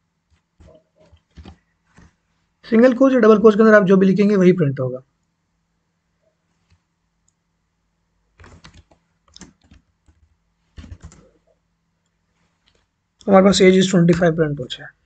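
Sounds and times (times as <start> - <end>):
computer keyboard typing: 8.4 - 11.4.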